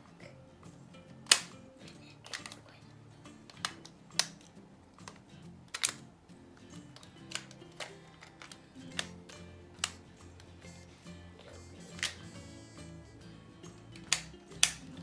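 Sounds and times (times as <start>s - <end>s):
faint background music: 0.0s - 15.0s
plastic toy clicks and snaps: 1.2s - 2.7s, 3.5s - 6.1s, 6.9s - 10.8s, 11.5s - 12.8s, 13.9s - 15.0s.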